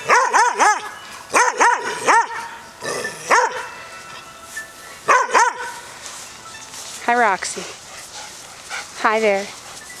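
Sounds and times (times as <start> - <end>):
dog barking: 0.0 - 2.6, 3.3 - 3.7, 5.1 - 5.8.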